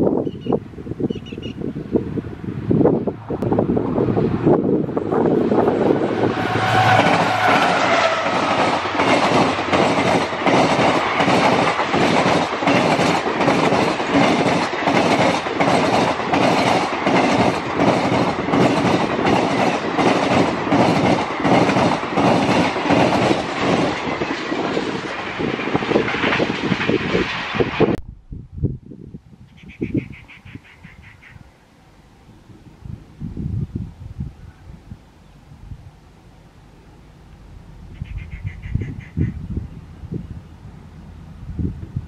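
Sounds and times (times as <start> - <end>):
diesel locomotive passing: 0.3 - 28.0, 34.9 - 42.0
train wheels clickety-clack: 6.2 - 28.0.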